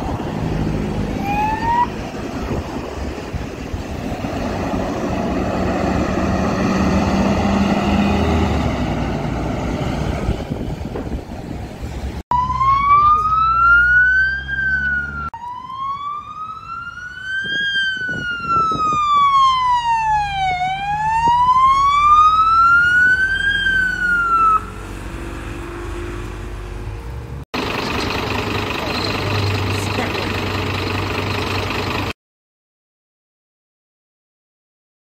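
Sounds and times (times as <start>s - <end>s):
fire engine siren wailing: 0.0s - 10.5s, 12.3s - 32.1s
heavy engine rumble: 0.0s - 12.2s, 26.2s - 32.2s.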